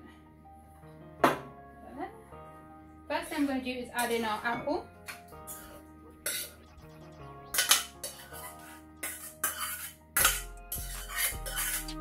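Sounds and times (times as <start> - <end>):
soft background music: 0.0 - 12.0
metal pot clanking on ceramic dish: 7.6 - 11.9.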